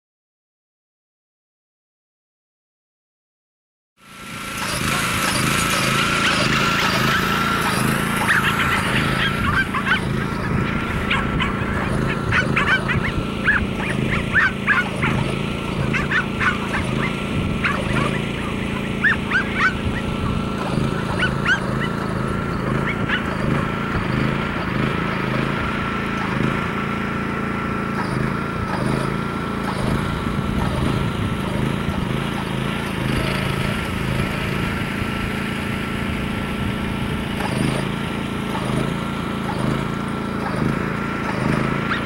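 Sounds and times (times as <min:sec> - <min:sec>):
motor hum with high whine: 0:04.0 - 0:42.0
dogs barking: 0:04.6 - 0:26.6, 0:27.8 - 0:33.7, 0:37.4 - 0:42.0.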